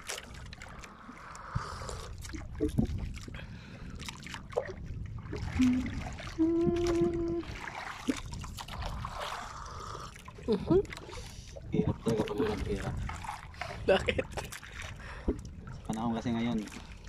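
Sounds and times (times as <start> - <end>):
wind rumble: 0.0 - 10.1
water lapping against boat: 0.0 - 17.0.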